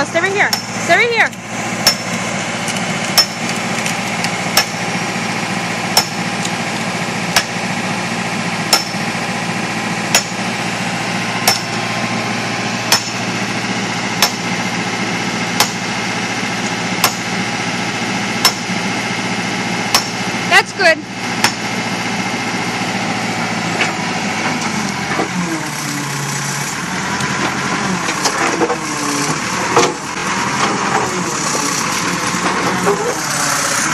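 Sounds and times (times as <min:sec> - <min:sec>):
diesel engine idling: 0:00.0 - 0:33.9
hand tool striking tree stump: 0:00.4 - 0:04.9, 0:05.9 - 0:06.6, 0:07.3 - 0:07.6, 0:08.7 - 0:09.0, 0:10.1 - 0:10.4, 0:11.4 - 0:11.8, 0:12.9 - 0:13.2, 0:14.2 - 0:14.5, 0:15.6 - 0:15.9, 0:17.0 - 0:17.3, 0:18.4 - 0:18.8, 0:19.9 - 0:20.2, 0:21.4 - 0:21.7.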